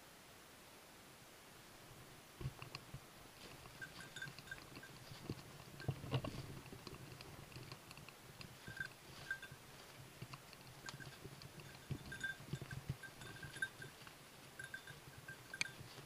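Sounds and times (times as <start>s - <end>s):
crunching footsteps: 2.4s - 16.0s
dog's bell tinkling: 3.7s - 6.1s, 8.6s - 9.6s, 10.7s - 16.0s.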